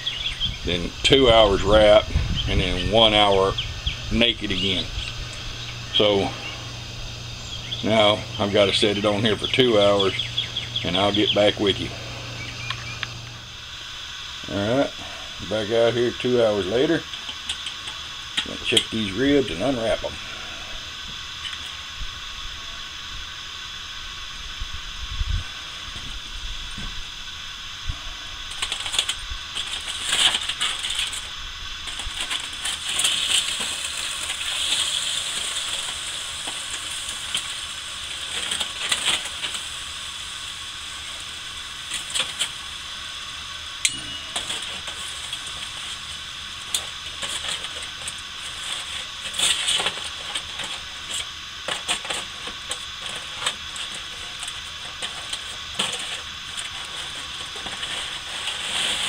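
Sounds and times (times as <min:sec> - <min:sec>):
aluminium foil crinkling: 0:28.5 - 0:43.4, 0:44.0 - 0:59.0.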